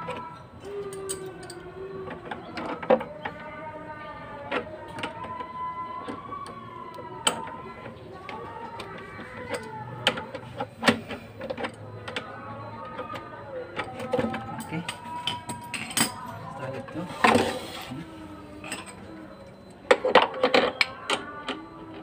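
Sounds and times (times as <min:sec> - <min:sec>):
wrench clinking on bolts: 0:00.8 - 0:01.6, 0:14.6 - 0:16.3.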